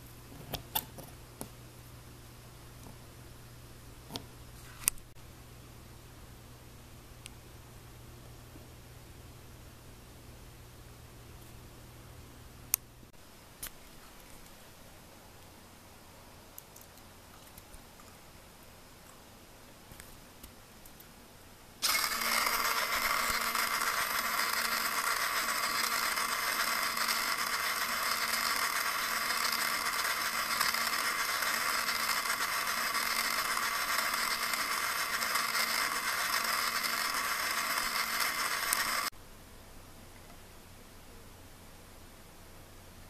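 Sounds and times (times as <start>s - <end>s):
small electric motor whirring: 21.8s - 39.1s.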